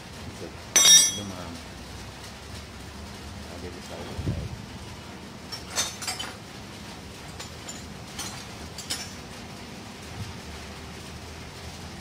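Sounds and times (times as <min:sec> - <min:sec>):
low steady hum: 0:00.0 - 0:12.0
light metal clinks: 0:00.8 - 0:01.4.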